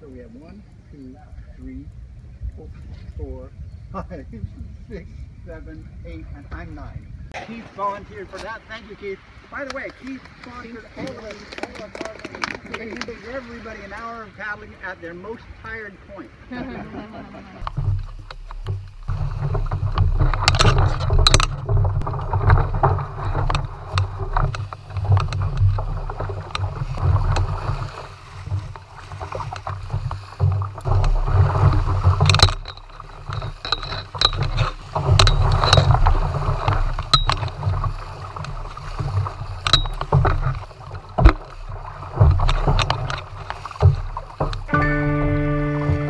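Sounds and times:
water washing along hull: 0.0s - 46.0s
paddles dipping and splashing: 6.1s - 46.0s
heavy low rumble: 17.0s - 46.0s.

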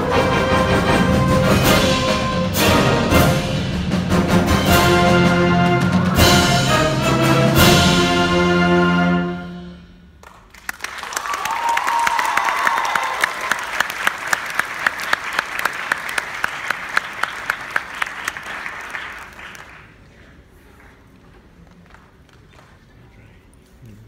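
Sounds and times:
audience applause: 10.2s - 22.9s.

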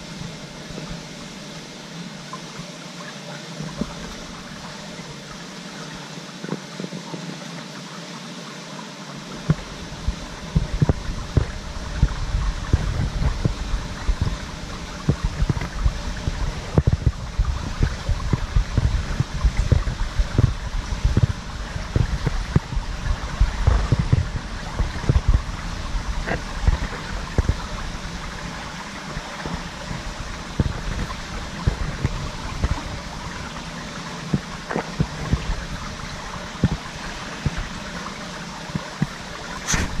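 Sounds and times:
water sloshing: 9.4s - 40.0s.

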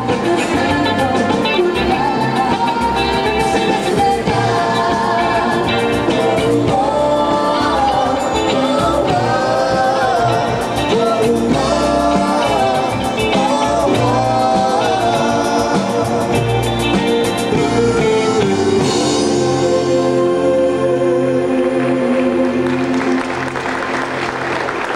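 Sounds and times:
woman singing into microphone: 0.0s - 16.4s
drums: 0.0s - 24.9s
electric guitar: 0.0s - 24.9s
keyboards: 0.0s - 24.9s.

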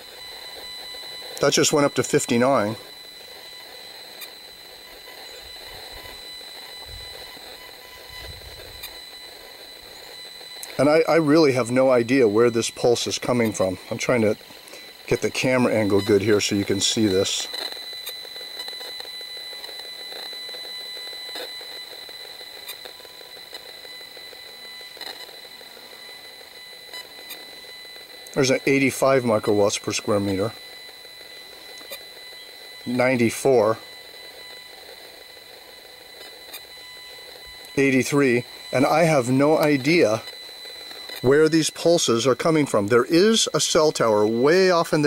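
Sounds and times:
steady high-pitched tone: 0.0s - 45.0s.

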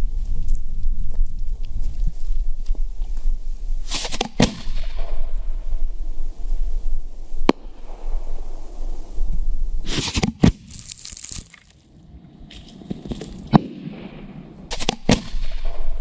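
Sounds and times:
firework shell launching: 3.8s - 6.0s, 9.8s - 11.8s, 13.5s - 16.0s
firework bursting: 3.8s - 12.1s, 13.4s - 16.0s.

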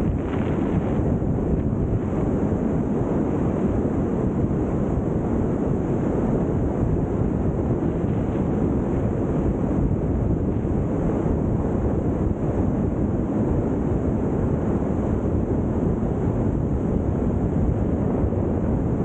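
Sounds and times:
wind roaring on microphone: 0.0s - 19.0s.

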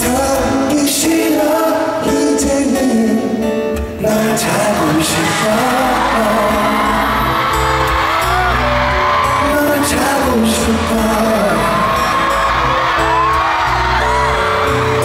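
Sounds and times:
live pop band playing: 0.0s - 15.0s
person singing: 0.0s - 15.0s.

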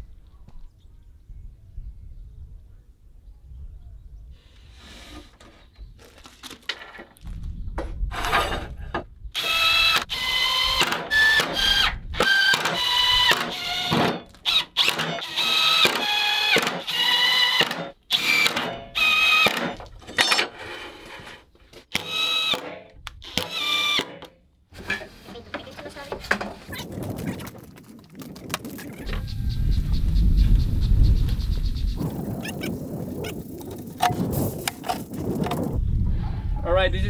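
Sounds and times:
drill whirring bursts: 9.4s - 19.6s, 22.0s - 22.6s.

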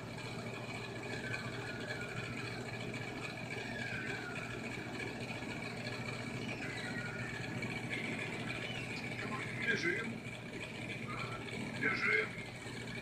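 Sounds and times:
high screeching cries: 1.0s - 9.2s.

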